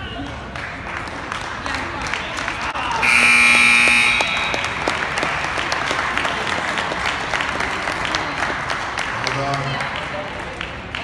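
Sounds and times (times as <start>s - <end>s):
spectators clapping: 0.3s - 11.0s
scoreboard buzzer: 3.0s - 4.9s.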